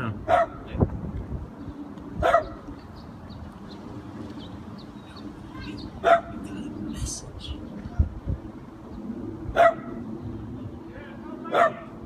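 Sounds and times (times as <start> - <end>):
dog barking: 0.3 - 0.6, 2.2 - 2.6, 6.0 - 6.4, 9.6 - 10.0, 11.5 - 11.9.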